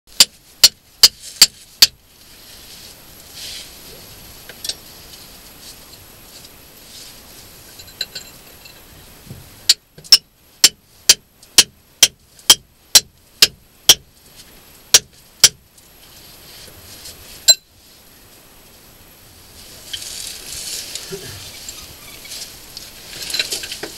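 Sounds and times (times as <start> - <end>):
hammer striking chisel into rock: 9.7 - 14.0, 14.9 - 15.6.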